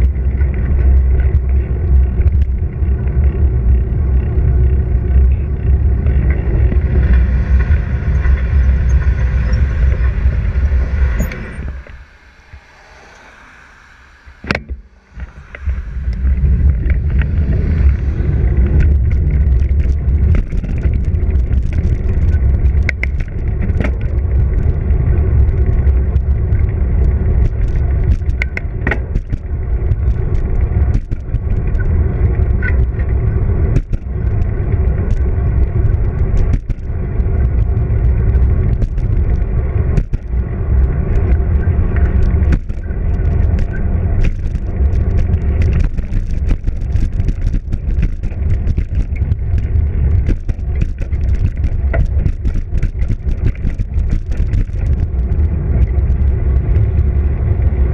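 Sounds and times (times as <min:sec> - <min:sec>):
tyre noise on pavement: 0:00.0 - 0:57.9
wind buffeting microphone: 0:00.0 - 0:57.9
bike knocking over bumps: 0:25.3 - 0:57.1.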